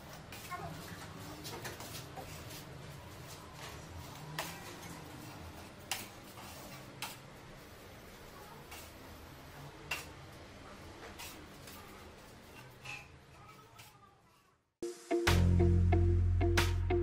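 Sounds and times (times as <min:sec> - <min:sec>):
faint room noise: 0:00.0 - 0:14.9.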